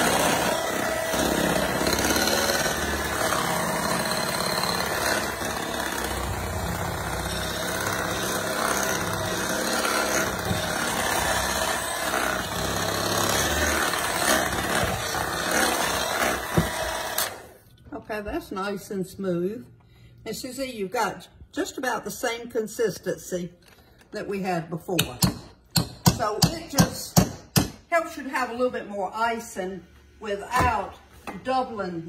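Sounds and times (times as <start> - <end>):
electric hand mixer whipping: 0.0 - 17.6.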